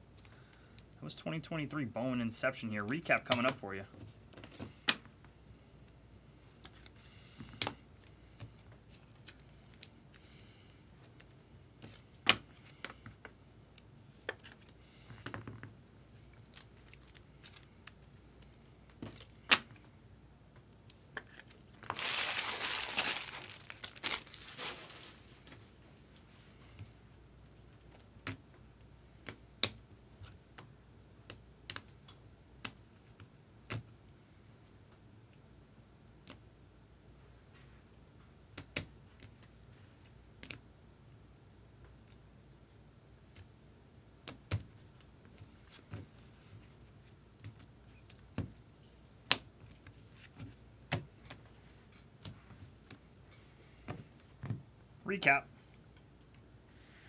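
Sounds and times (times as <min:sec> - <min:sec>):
foil wrapper crinkling: 0:21.3 - 0:25.6.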